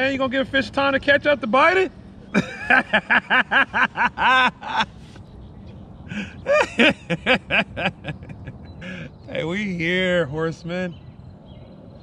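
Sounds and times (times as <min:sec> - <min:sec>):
man laughing hard: 0:02.3 - 0:05.1, 0:06.1 - 0:09.1.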